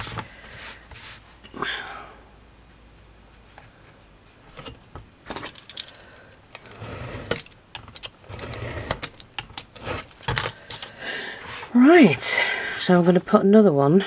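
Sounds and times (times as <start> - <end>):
knife scraping through board: 8.3 - 9.1, 9.7 - 10.2.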